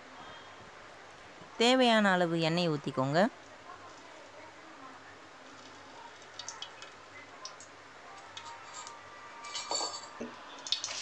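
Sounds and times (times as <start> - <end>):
utensils clattering: 8.4 - 10.2
utensils clicking and clinking: 8.4 - 10.2.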